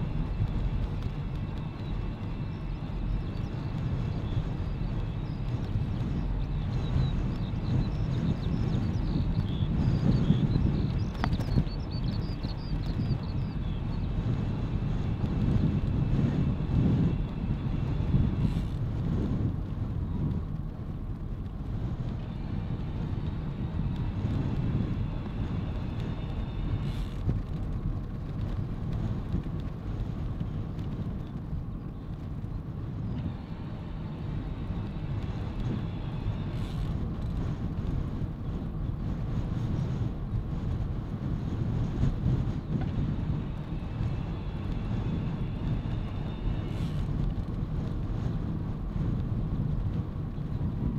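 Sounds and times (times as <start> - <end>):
bicycle tyres rolling on road: 0.0 - 50.9
wind buffeting microphone: 0.0 - 50.9
faint high whine: 41.3 - 49.8.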